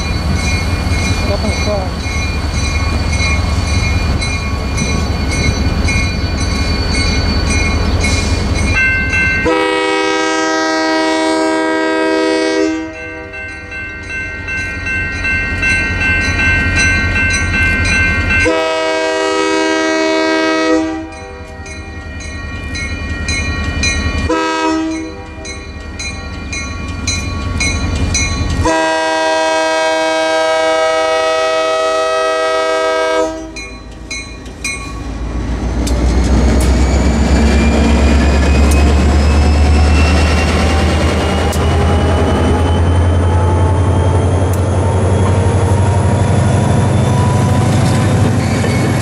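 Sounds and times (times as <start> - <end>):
crossing bell dinging: 0.0 - 11.2, 11.9 - 29.7, 32.8 - 35.4, 36.0 - 49.0
locomotive engine rumbling: 0.0 - 12.9, 13.7 - 49.0
locomotive horn blasts: 9.4 - 13.4, 18.4 - 21.2, 24.3 - 25.2, 28.6 - 33.6.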